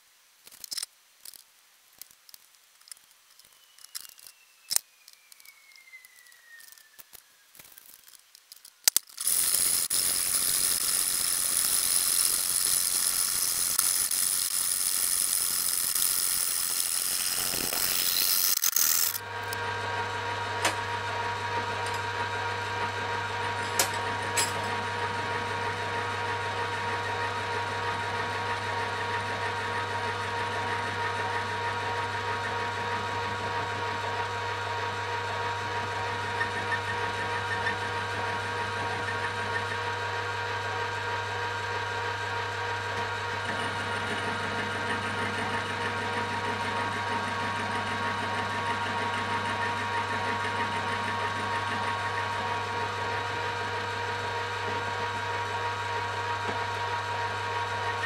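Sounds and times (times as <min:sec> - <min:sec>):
lathe machine whine: 0:26.1 - 0:58.0.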